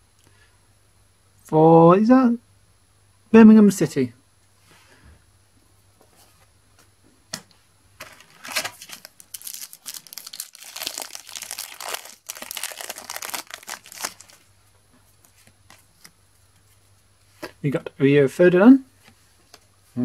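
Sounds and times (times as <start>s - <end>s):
foil packet crinkling and tearing: 8.0s - 14.5s.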